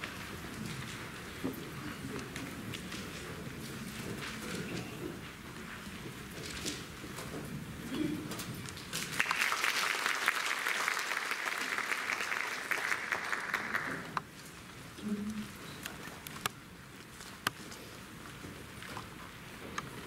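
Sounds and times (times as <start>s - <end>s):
audience applauding: 9.0s - 14.2s.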